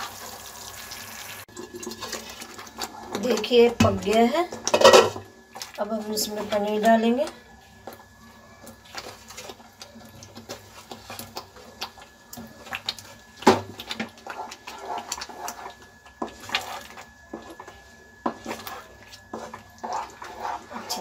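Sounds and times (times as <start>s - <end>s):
wooden spatula scraping steel pan: 13.8s - 21.0s.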